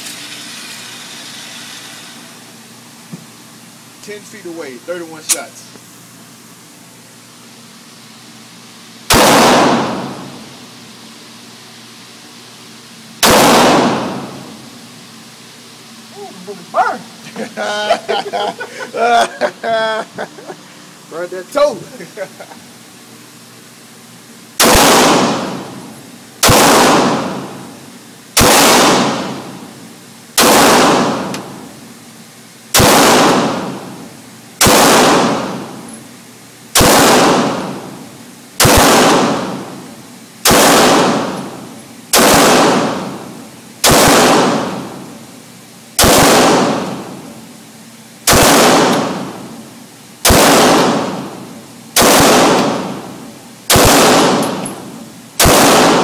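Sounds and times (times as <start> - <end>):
pistol shots echoing indoors: 9.1 - 10.5, 13.2 - 14.6, 24.6 - 27.8, 28.4 - 29.8, 30.4 - 31.8, 32.7 - 36.0, 36.7 - 45.1, 46.0 - 47.4, 48.2 - 49.6, 50.2 - 56.0.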